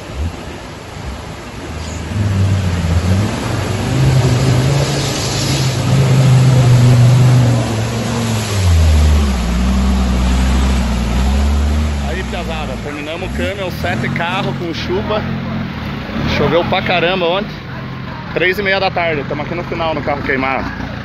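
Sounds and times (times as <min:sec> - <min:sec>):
muddy water splashing: 0:00.0 - 0:18.4
engine revving hard: 0:01.7 - 0:17.2.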